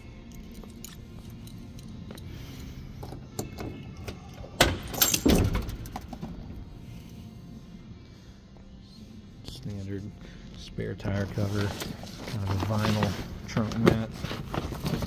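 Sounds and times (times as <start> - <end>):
keys jangling on a ring: 0.0 - 2.5, 3.3 - 5.5.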